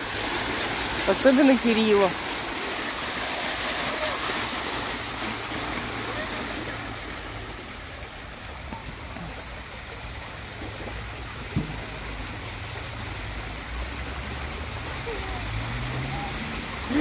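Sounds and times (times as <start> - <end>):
fountain water spattering on grate: 0.0 - 7.5, 8.2 - 17.0
sharp knock: 11.6 - 12.0.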